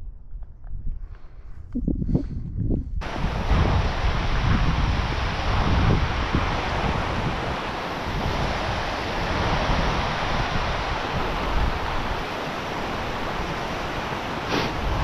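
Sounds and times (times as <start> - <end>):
wind buffeting microphone: 0.0 - 15.0
stream rushing over rocks: 3.0 - 15.0.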